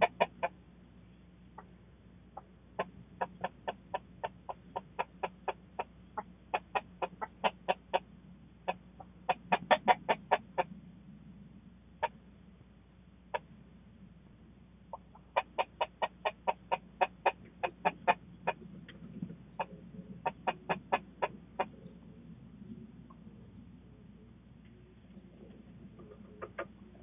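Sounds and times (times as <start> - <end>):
chickens clucking: 0.0 - 0.7, 1.4 - 10.8, 14.9 - 22.4, 24.6 - 27.0.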